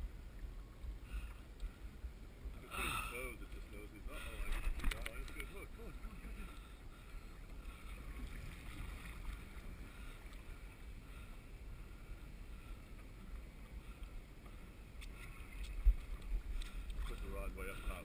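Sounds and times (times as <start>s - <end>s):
water around kayak hull: 0.0s - 18.0s
wind rumbling on microphone: 0.0s - 18.0s.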